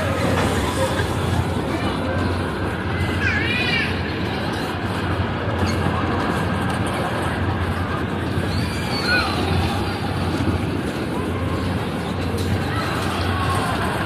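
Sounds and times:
crowd chatter: 0.0s - 14.0s
low machine hum: 0.0s - 14.0s.

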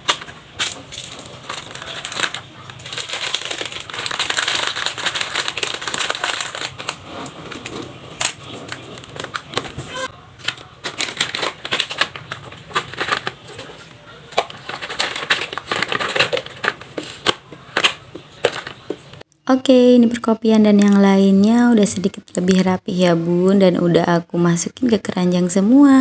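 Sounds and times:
plastic packets crinkling: 0.0s - 19.2s.

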